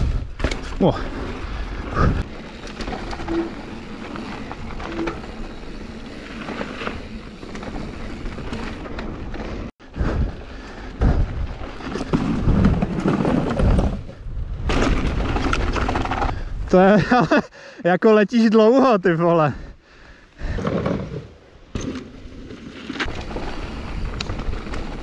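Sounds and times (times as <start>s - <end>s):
bike knocking and rattling: 0.0s - 10.4s, 11.0s - 16.4s
bike tyres rolling on dirt: 0.0s - 17.2s, 21.7s - 25.0s.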